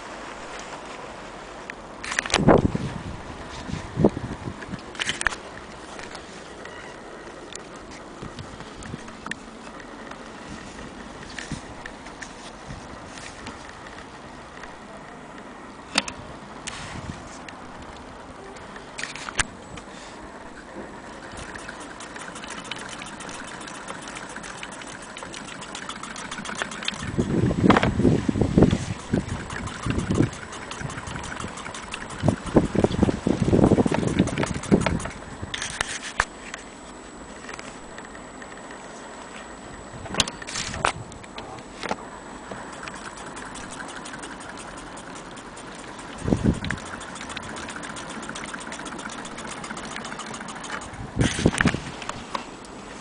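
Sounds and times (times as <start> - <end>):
sewing machine ticking: 21.2 - 27.4, 29.0 - 35.2, 42.7 - 51.0.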